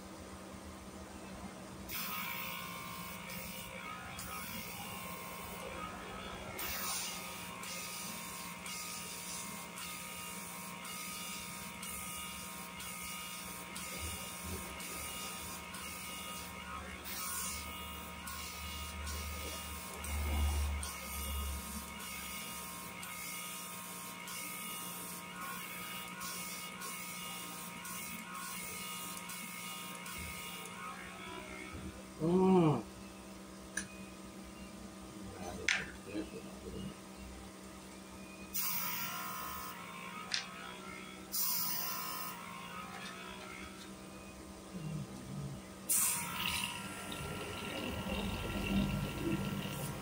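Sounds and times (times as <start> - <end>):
small machine humming: 0.0 - 50.0.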